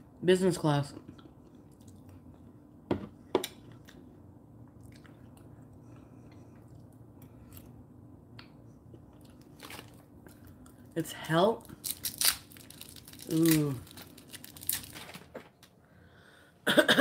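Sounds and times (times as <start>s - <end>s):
chewing and mouth sounds: 1.1s - 2.5s, 3.5s - 10.9s.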